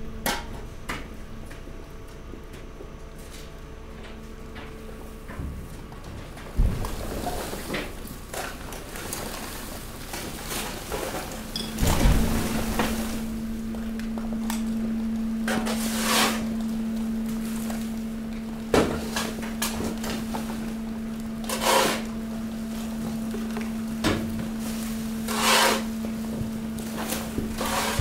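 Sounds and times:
garbage compactor humming: 0.0 - 28.0
garbage crackling and creaking: 5.9 - 28.0.

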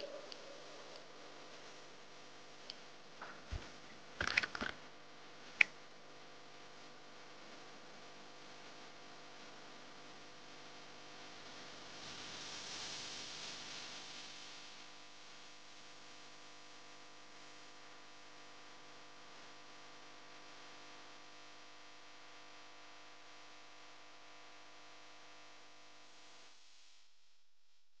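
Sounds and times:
faint steady tones: 0.0 - 4.1
low hum: 0.0 - 4.5
faint steady hiss: 0.0 - 28.0.

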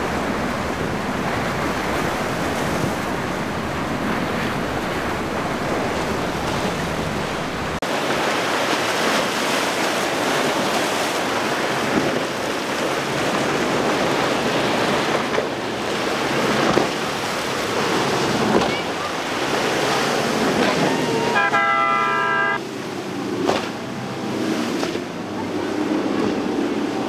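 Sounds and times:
wind buffeting the microphone: 0.0 - 7.8
ocean surf and spray: 0.0 - 27.0.

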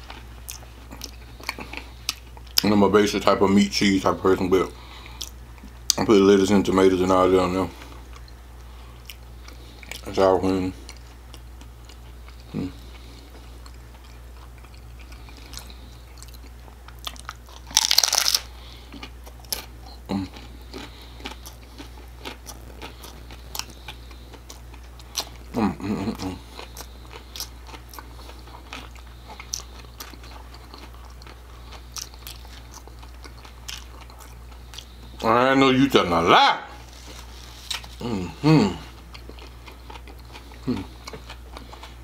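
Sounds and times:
crunchy chewing: 0.0 - 2.7, 6.9 - 35.3, 36.8 - 42.0
crunchy taco bite: 10.8 - 35.0, 36.4 - 42.0.

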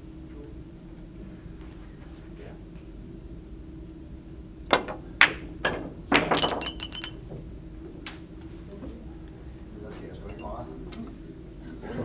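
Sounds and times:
billiard balls clicking: 4.7 - 7.2.

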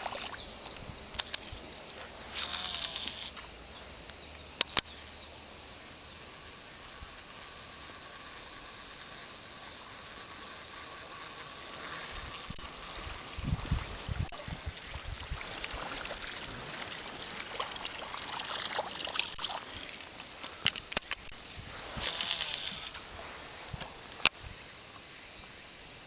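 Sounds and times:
insects chorus: 0.0 - 26.0
sharp clicks: 1.1 - 1.5, 4.6 - 4.9, 20.6 - 21.4.

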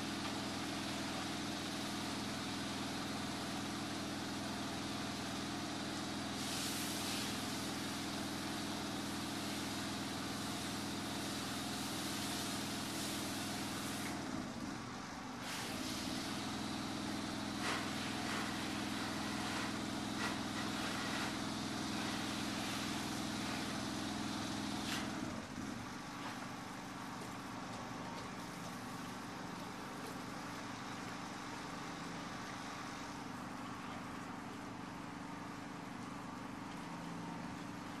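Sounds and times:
spray rig engine running: 0.0 - 38.0
spray hissing from wand: 6.4 - 7.9.

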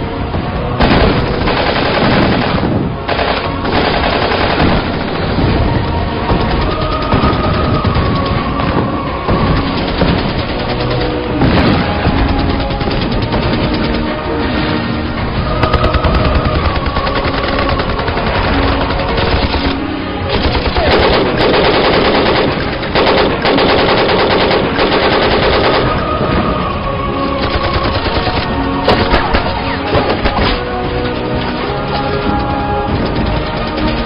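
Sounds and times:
film soundtrack music: 0.0 - 34.0
machine-gun fire: 0.8 - 5.6, 9.3 - 14.1, 15.6 - 26.0
gunshots: 0.8 - 14.8, 15.5 - 26.2, 27.3 - 30.9.

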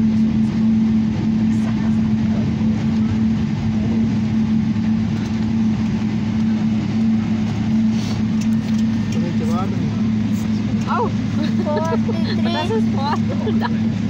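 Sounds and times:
aircraft engines idling: 0.0 - 14.0.

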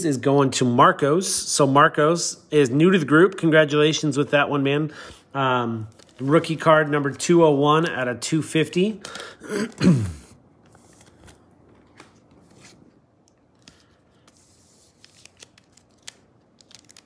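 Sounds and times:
trading cards rustling and clicking: 10.6 - 17.0.

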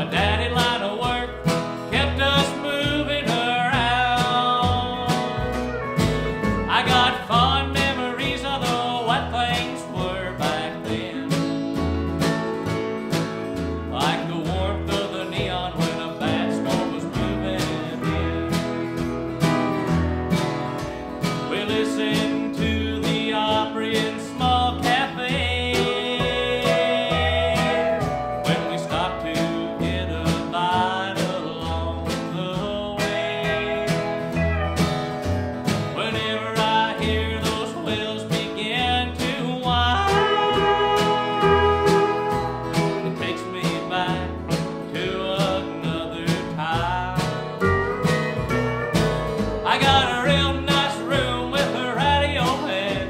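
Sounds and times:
acoustic guitar strumming: 0.0 - 53.0
held melody: 0.0 - 53.0
upright bass plucking: 0.0 - 53.0.

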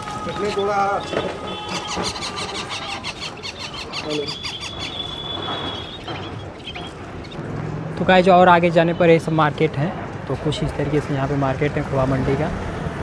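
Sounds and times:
bird squeal: 0.0 - 7.4
small birds chirping: 0.2 - 7.4.

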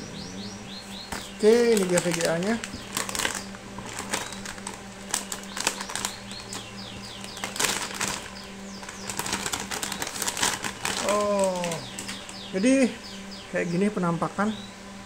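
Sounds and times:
steady low hum: 0.0 - 15.0
metallic plastic bag crinkling: 1.1 - 12.4.

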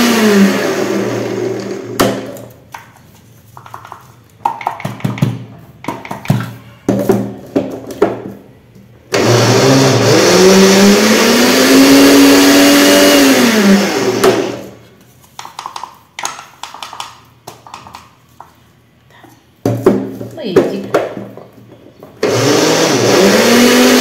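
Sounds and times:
electric grinder motor running: 9.2 - 14.7, 22.2 - 24.0.

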